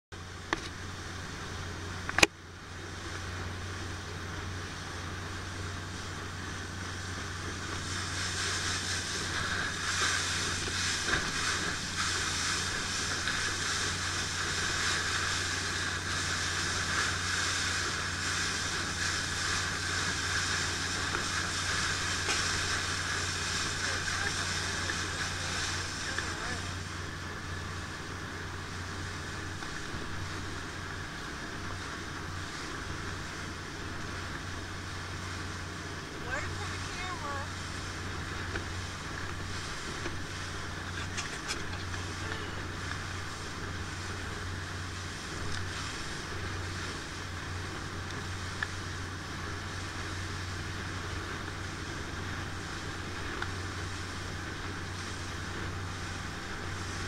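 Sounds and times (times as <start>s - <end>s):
motorboat engine running: 0.1s - 57.0s
water spray: 7.4s - 26.9s.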